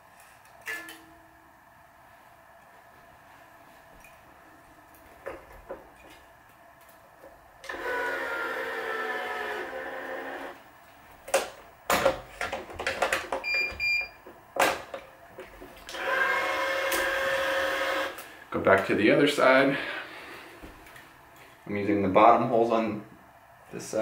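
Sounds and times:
stringing machine motor whirring: 0:07.6 - 0:10.6.

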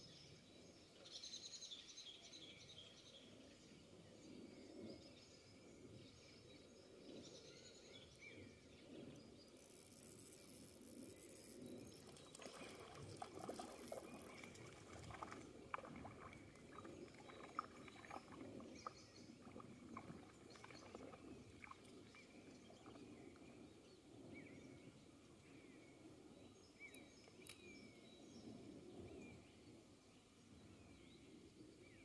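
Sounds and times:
small clicks: 0:09.5 - 0:14.6, 0:26.9 - 0:27.7.

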